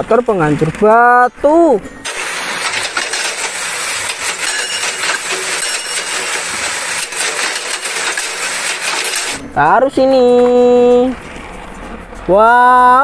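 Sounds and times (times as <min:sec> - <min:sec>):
hydraulic breaker hammering stone: 0:02.1 - 0:09.5.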